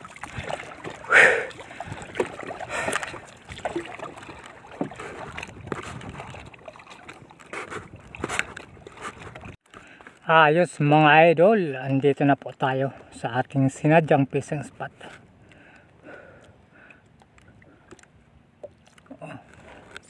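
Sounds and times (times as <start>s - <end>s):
paddle splashing through water: 0.0s - 10.0s.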